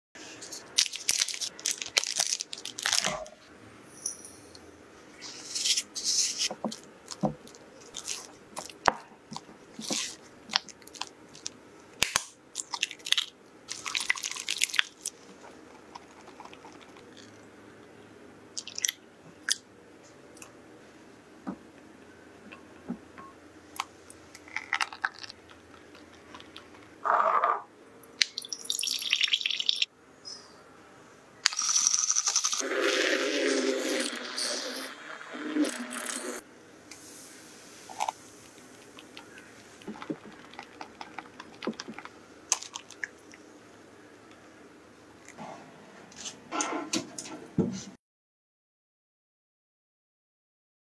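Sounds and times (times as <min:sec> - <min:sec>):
spatula squishing and scraping: 0:09.8 - 0:10.2
liquid pouring: 0:28.4 - 0:29.8
electric milk frother whirring: 0:32.3 - 0:36.4.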